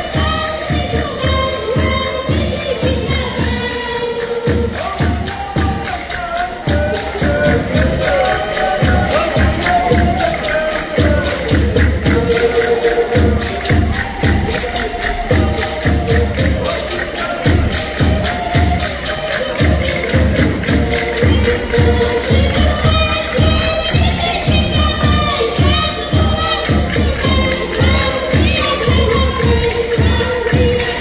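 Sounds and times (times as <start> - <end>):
folk-dance music: 0.0 - 31.0
quick percussion beat: 0.0 - 31.0.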